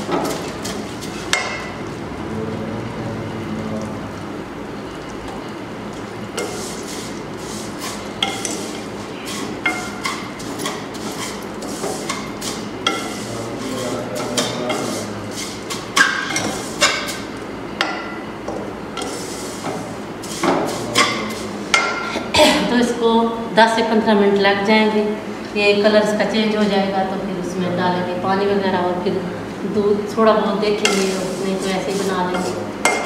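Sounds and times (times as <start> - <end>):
low hiss of roasting: 0.0 - 23.6, 27.0 - 33.0
metal spoon scraping wok: 6.4 - 17.3, 30.7 - 33.0.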